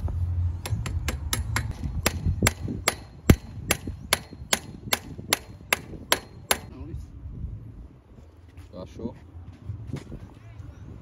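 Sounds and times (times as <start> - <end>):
hammer striking metal: 0.6 - 6.7.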